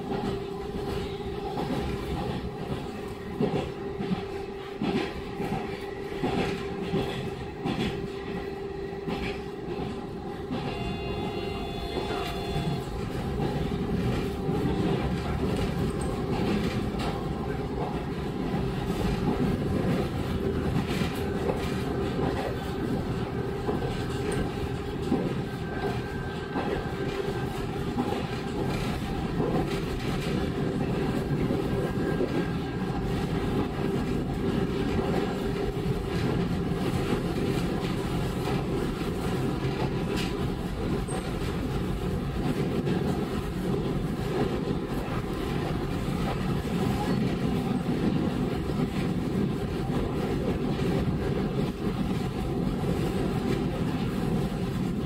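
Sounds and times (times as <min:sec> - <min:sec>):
wheels on rails: 0:00.0 - 0:55.0
track clicks: 0:00.2 - 0:17.2.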